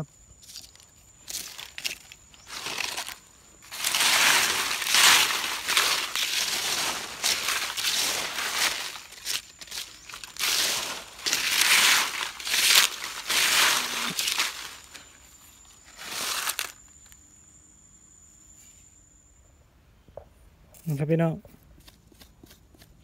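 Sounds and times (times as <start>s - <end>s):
dry leaves crunching: 0.3s - 17.2s.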